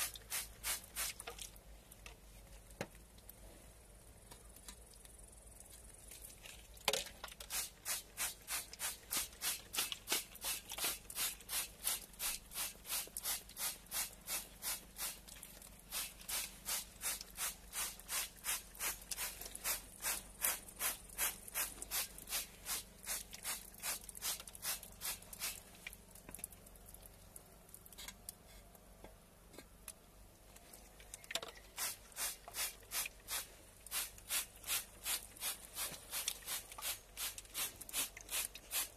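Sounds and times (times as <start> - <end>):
spray bottles hissing: 15.9 - 25.6.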